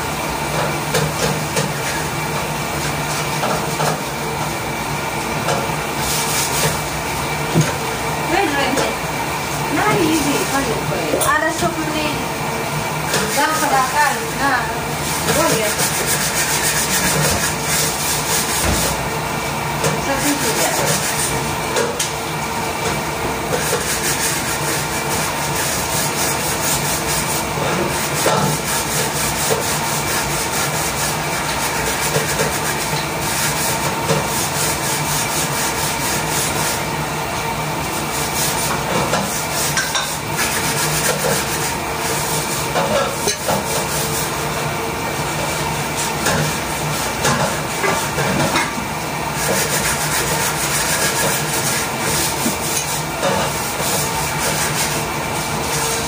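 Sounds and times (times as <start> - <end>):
steady hum: 0.0 - 56.0
wooden spatula scraping pan: 13.1 - 19.0, 20.0 - 21.4, 23.5 - 36.8, 38.2 - 44.4, 45.9 - 56.0.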